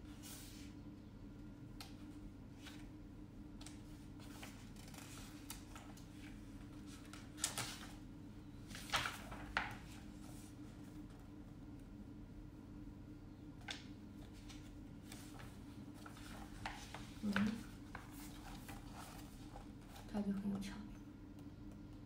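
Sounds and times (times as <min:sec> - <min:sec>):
steady low hum: 0:00.0 - 0:22.0
magazine pages turning: 0:02.6 - 0:02.9, 0:03.6 - 0:08.0, 0:08.6 - 0:10.5, 0:13.6 - 0:20.1.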